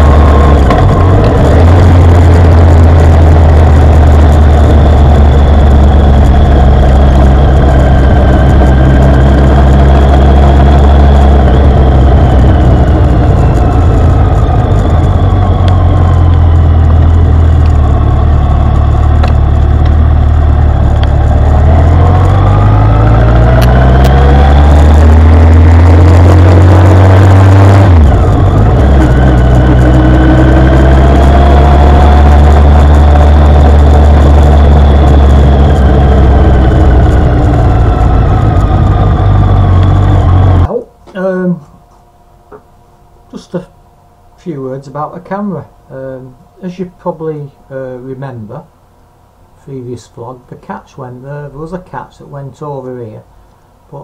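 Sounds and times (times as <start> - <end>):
motorcycle engine revving: 0.0 - 40.7.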